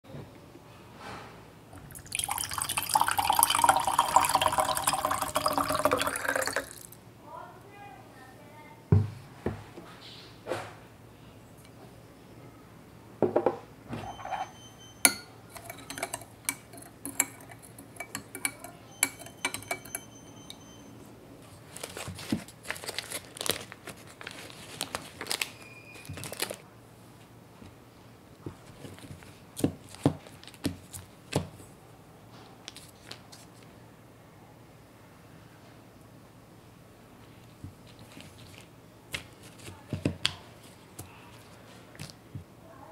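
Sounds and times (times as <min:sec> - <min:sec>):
glass jug clinking: 0:01.8 - 0:07.0, 0:13.2 - 0:20.8
foil wrapper crinkling and tearing: 0:21.7 - 0:26.6.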